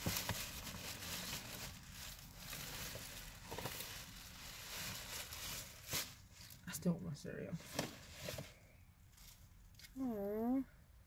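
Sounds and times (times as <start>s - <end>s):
cardboard box and paper rustling: 0.0s - 6.6s, 7.6s - 8.6s.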